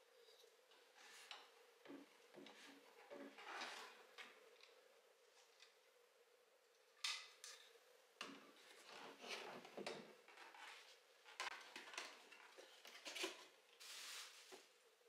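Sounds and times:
brief hiss: 13.8 - 14.5.

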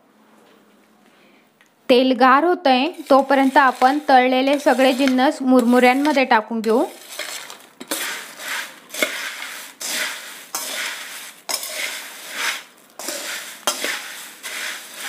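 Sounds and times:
puffed rice rustling in bowl: 2.8 - 15.0.

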